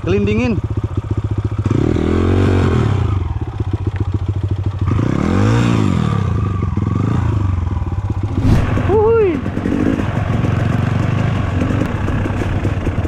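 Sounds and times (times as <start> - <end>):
dirt bike engine idling: 0.0 - 1.8, 3.0 - 4.9, 7.6 - 13.0
dirt bike engine revving: 8.2 - 13.0.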